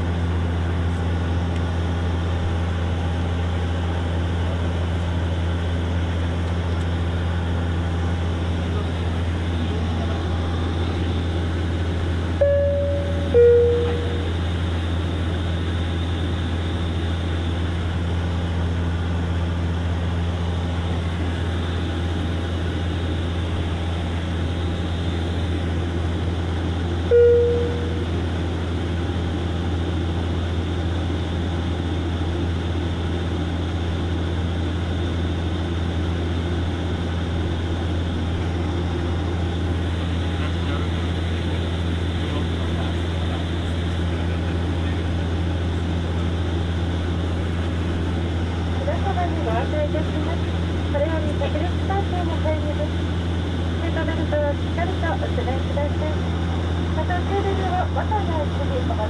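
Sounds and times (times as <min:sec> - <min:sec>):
aircraft cabin drone: 0:00.0 - 0:59.0
single low chime: 0:12.4 - 0:14.2, 0:27.1 - 0:28.0
two-note chime: 0:12.4 - 0:14.2.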